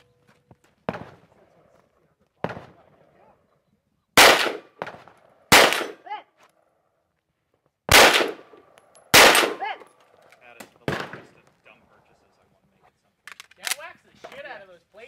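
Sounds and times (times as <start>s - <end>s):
pistol shots with echo: 2.4s - 3.0s, 4.2s - 6.1s, 7.9s - 9.8s, 10.7s - 11.4s.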